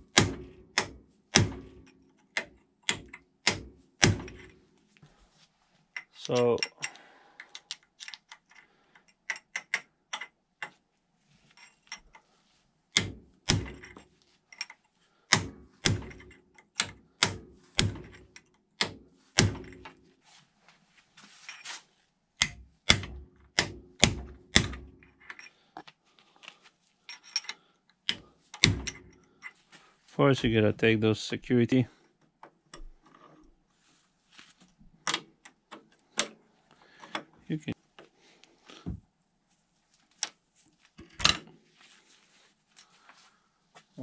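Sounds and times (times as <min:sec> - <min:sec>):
metal tools knocking and clicking: 0:00.0 - 0:04.6, 0:06.0 - 0:10.8, 0:12.9 - 0:19.0, 0:27.1 - 0:29.6.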